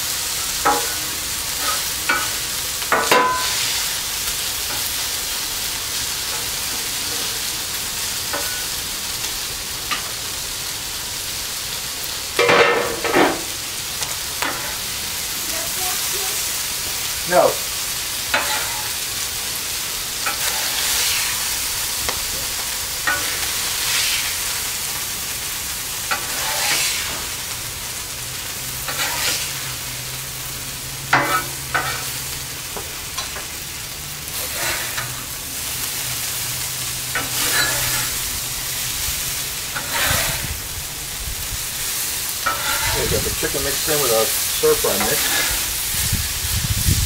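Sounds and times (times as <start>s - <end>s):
chicken and vegetables sizzling: 0.0s - 47.0s
metal spatula scraping griddle: 0.5s - 4.0s, 8.3s - 8.8s, 14.4s - 14.8s, 18.3s - 19.0s, 20.2s - 25.0s, 26.1s - 27.5s, 28.8s - 30.2s, 31.0s - 32.2s, 34.3s - 36.4s, 37.0s - 40.7s, 41.8s - 46.0s.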